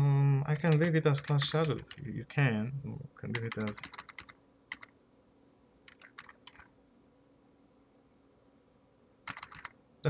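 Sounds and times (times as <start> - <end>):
computer keyboard keystrokes: 0.6 - 2.0, 3.3 - 4.9, 5.9 - 6.7, 9.3 - 9.8.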